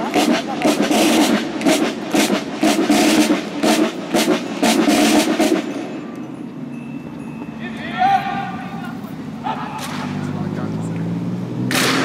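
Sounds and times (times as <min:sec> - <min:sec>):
snare drums playing a march: 0:00.0 - 0:05.9.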